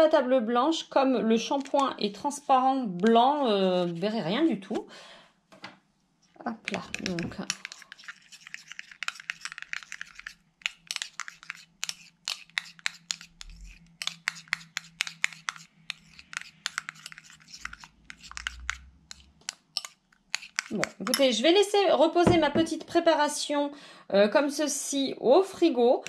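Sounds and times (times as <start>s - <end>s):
spoon scraping glass bowl: 6.6s - 21.4s.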